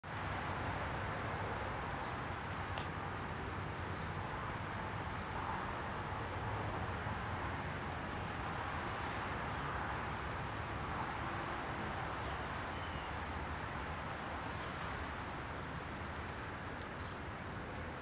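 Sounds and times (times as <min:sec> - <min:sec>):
outdoor background rush: 0:00.0 - 0:18.0
songbird chirps: 0:10.6 - 0:11.0, 0:12.0 - 0:18.0.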